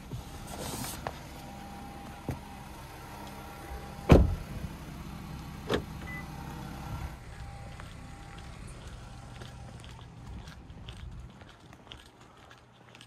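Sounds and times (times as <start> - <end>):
car door thumping shut: 4.0 - 4.6.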